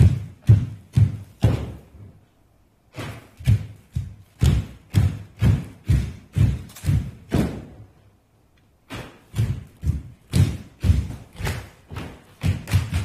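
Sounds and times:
hands and feet thudding on stage: 0.0 - 2.2, 2.9 - 8.0, 8.8 - 13.0.

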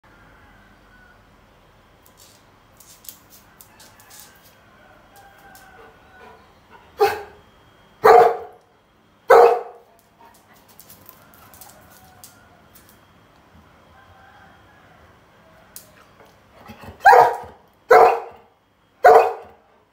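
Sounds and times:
dog barking: 7.0 - 7.4, 8.0 - 8.6, 9.3 - 9.9, 17.0 - 19.6.

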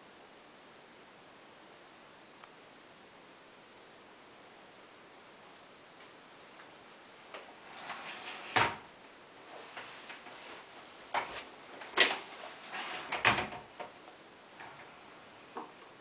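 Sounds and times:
glass shower door knocks and clunks: 7.8 - 8.9, 12.0 - 14.0.

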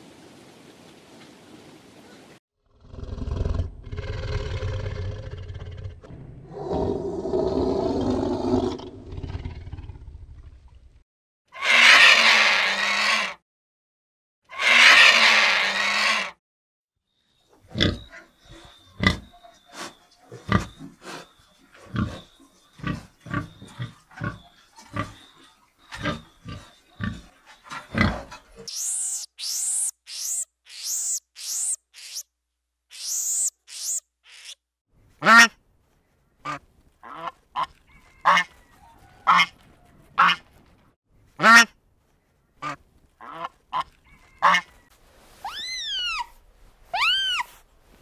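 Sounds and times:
tiger roaring and growling: 2.7 - 10.6
pigs grunting: 17.6 - 28.7.

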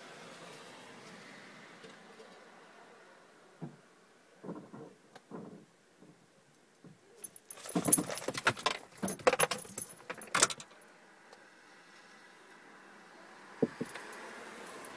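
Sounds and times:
small metal pieces jangling: 7.2 - 10.7.

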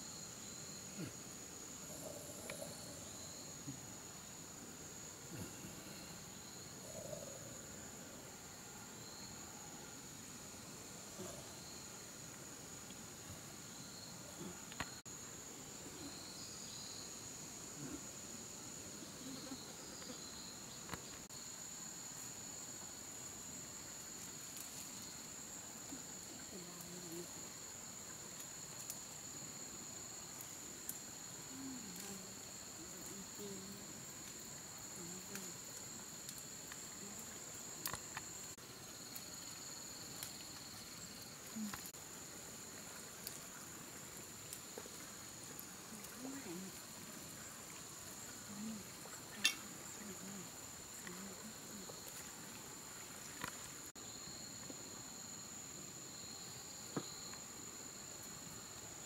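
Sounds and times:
insects droning: 0.0 - 59.0.

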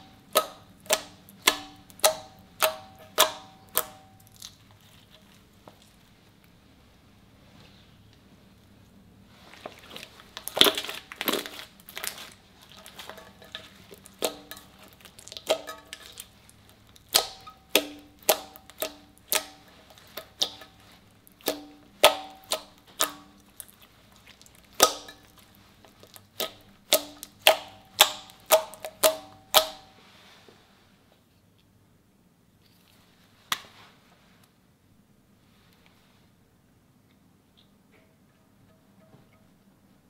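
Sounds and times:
sticky pops of slime: 0.3 - 4.6, 16.9 - 20.7, 21.3 - 29.9.

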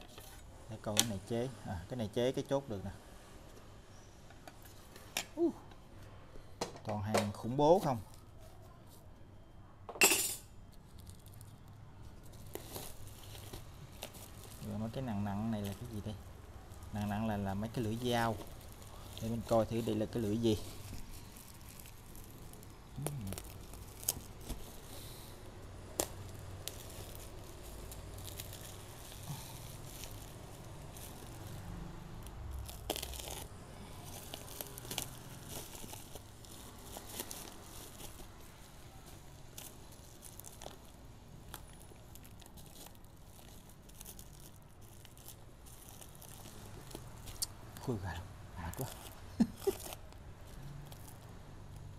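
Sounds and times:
bubble wrap crinkling and tearing: 10.6 - 51.9.

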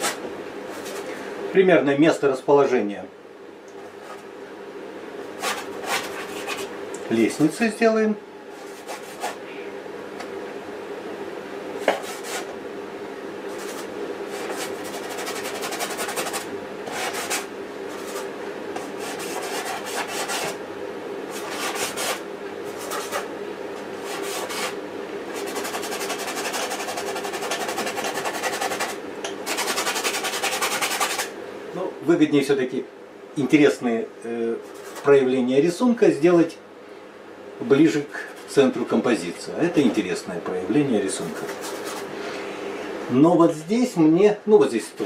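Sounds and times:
paintbrush scrubbing canvas: 5.4 - 6.7, 8.6 - 9.4, 11.9 - 12.5, 13.5 - 20.6, 21.3 - 23.3, 24.0 - 24.8, 25.4 - 31.3, 34.6 - 35.1, 41.2 - 42.1.

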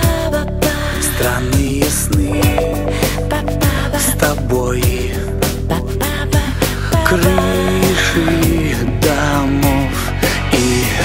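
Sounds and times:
song with steady drum beat: 0.0 - 11.0
held instrumental tones: 2.2 - 5.0, 7.2 - 9.8.

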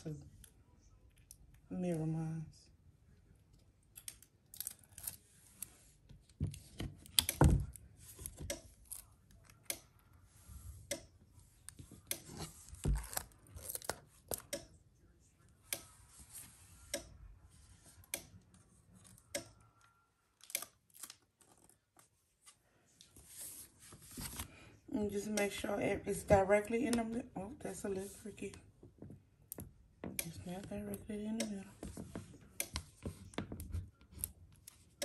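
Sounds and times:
tape being pulled and torn: 12.1 - 14.6.

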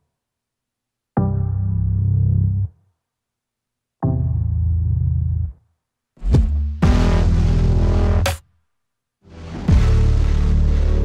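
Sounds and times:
electronic pop music: 6.2 - 8.4, 9.3 - 11.0.

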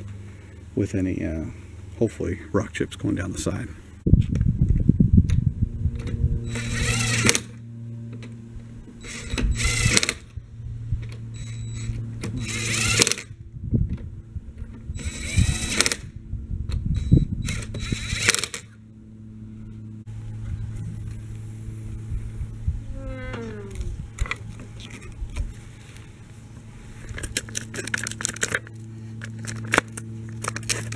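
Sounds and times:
impact wrench whining: 6.4 - 7.6, 8.9 - 10.3, 11.3 - 13.3, 14.9 - 16.2, 16.8 - 18.8.

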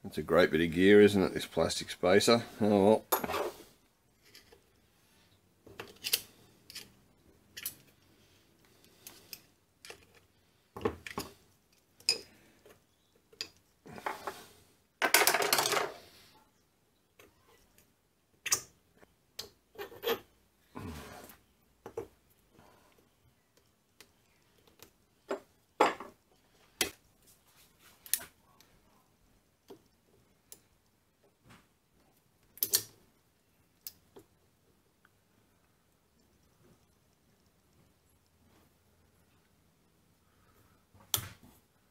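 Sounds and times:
metal parts clicking and clinking: 5.8 - 8.0.

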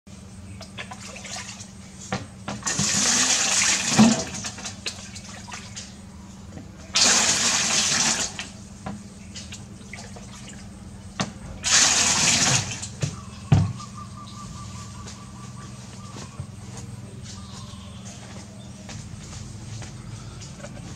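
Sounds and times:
water pouring into metal basin: 7.0 - 8.5, 11.6 - 12.9
low hum: 12.5 - 20.9.

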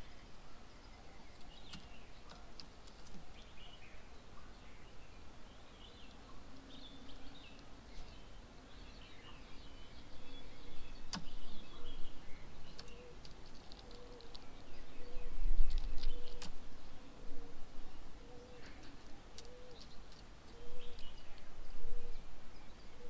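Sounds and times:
low bird call: 9.1 - 23.0
birds chirping and whistling: 13.8 - 16.5, 18.3 - 23.0.

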